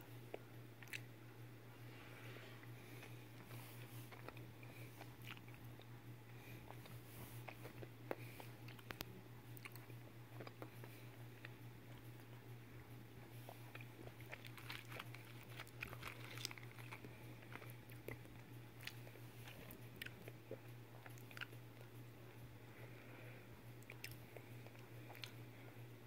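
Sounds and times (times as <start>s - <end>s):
steady low hum: 0.0s - 26.0s
foil wrapper crackling: 14.4s - 17.6s.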